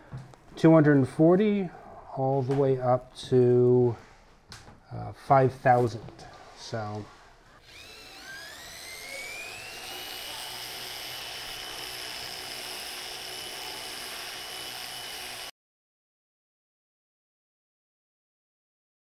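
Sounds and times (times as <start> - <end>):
rotary tool whine: 7.6 - 15.5.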